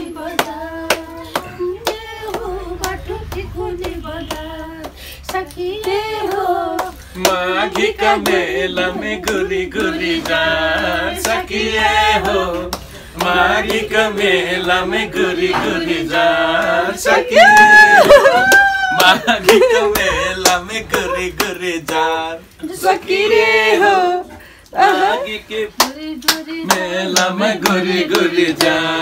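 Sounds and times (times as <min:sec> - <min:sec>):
people singing together: 0:00.0 - 0:29.0
hand claps: 0:00.4 - 0:11.4, 0:12.2 - 0:14.8, 0:17.4 - 0:22.1, 0:25.8 - 0:28.8.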